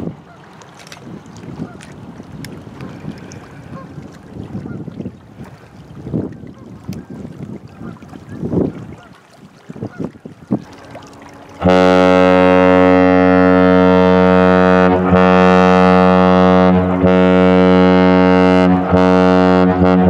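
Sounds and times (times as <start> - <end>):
wind noise on microphone: 0.0 - 20.0
ship air horn blast: 10.6 - 20.0.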